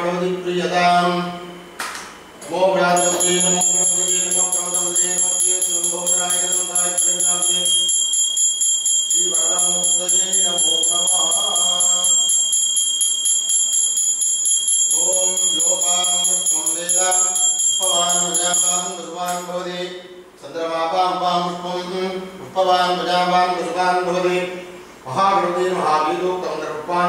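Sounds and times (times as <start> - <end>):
hand bell ringing rapidly: 3.0 - 19.6.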